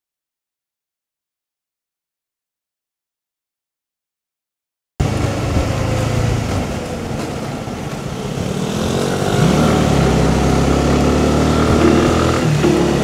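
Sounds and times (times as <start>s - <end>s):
motorcycle engine running: 8.5s - 13.0s.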